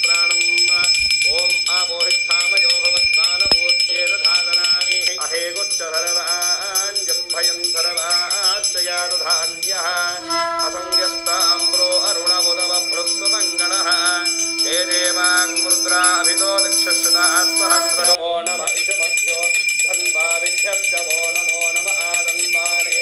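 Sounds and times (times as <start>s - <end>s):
bells ringing: 0.0s - 23.0s
person singing devotional melody: 1.3s - 18.2s
steady held note: 6.3s - 18.2s.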